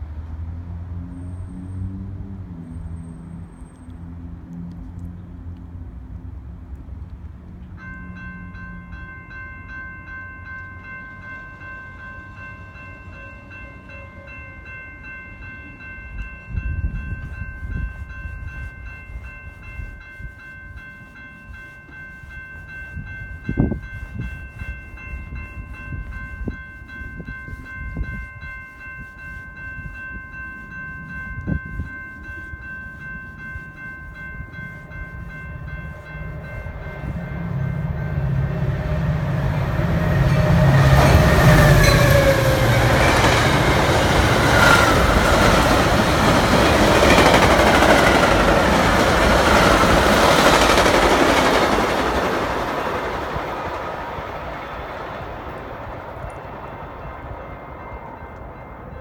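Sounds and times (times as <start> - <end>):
train rumble: 0.0 - 59.0
railroad crossing bells ringing: 7.0 - 59.0
wind rumble on microphone: 16.1 - 20.4, 22.8 - 51.2.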